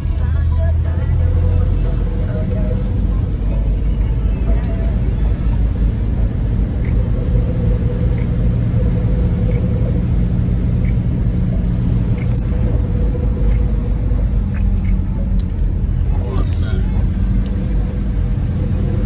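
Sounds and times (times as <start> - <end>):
faint steady whine: 0.0 - 19.0
van engine and tyres rumbling: 0.0 - 19.0
light ticks: 6.8 - 7.4, 8.1 - 8.4, 10.8 - 11.2, 12.0 - 12.8, 13.4 - 16.1.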